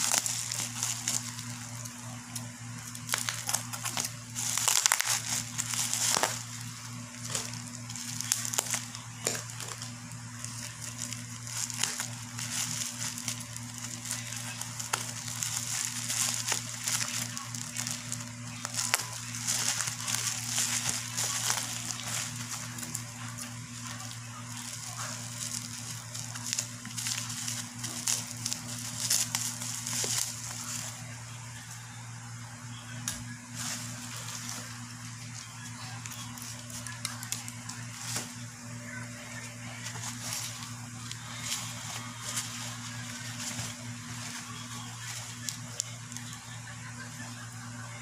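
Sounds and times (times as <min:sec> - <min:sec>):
bubble wrap crackles: 0:00.0 - 0:48.0
bubble wrap crinkling: 0:00.0 - 0:48.0.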